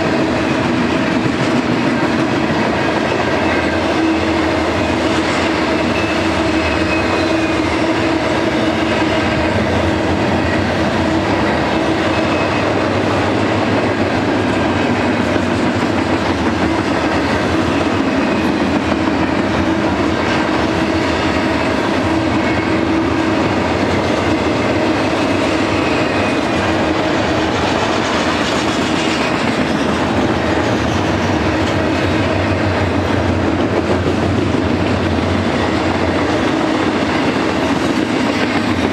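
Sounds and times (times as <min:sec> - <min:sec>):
steel wheels clattering on rails: 0:00.0 - 0:38.9.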